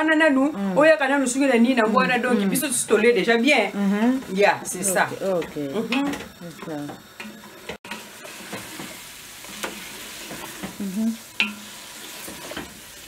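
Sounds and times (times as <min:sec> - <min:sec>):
cooking food hissing: 0:00.4 - 0:13.0
wooden spoon stirring in pot: 0:01.7 - 0:13.0
spoon knocking against pot: 0:11.4 - 0:11.7.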